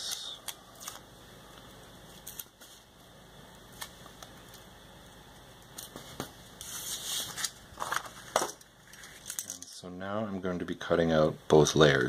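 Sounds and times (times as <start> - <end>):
paper rustle: 5.8 - 9.6
paper being smoothed by hand: 6.6 - 7.5.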